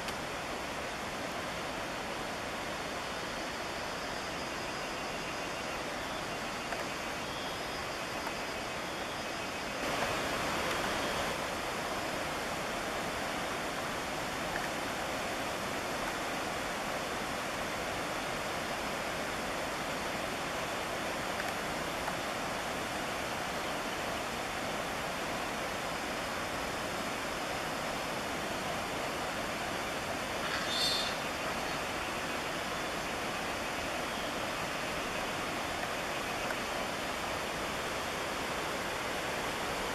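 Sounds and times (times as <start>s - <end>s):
stream water rushing over rocks: 0.0s - 39.9s.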